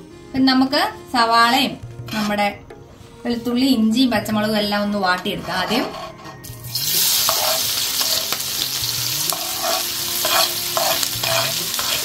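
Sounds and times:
vegetables sizzling in hot oil: 6.5s - 12.0s.

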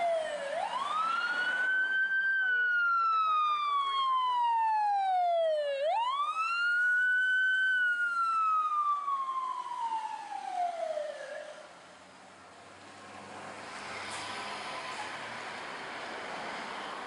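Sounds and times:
fire engine siren wailing: 0.0s - 11.9s.

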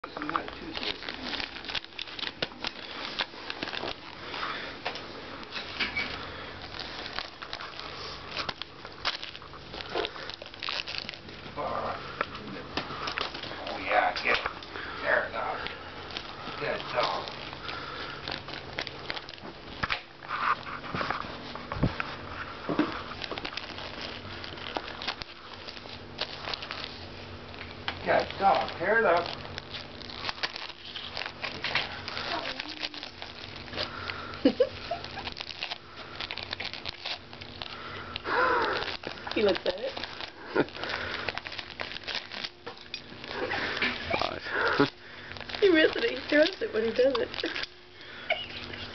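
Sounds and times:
dog chewing and tearing: 0.0s - 48.9s
wrapping paper crinkling: 0.0s - 48.9s.

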